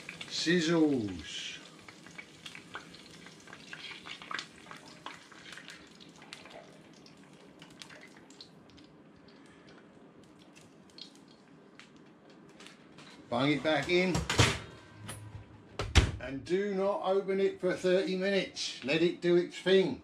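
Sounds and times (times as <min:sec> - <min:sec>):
batter sizzling in hot oil: 0:00.0 - 0:08.8, 0:10.9 - 0:11.3.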